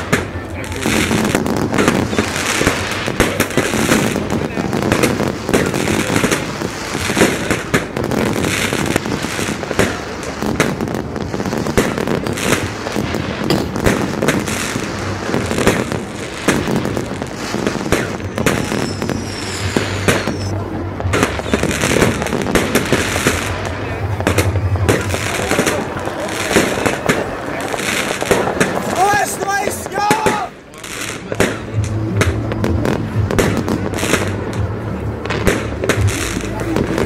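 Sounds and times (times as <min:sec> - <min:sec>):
fireworks bangs and crackling: 0:00.0 - 0:37.0
falling firework whistles: 0:17.4 - 0:20.6.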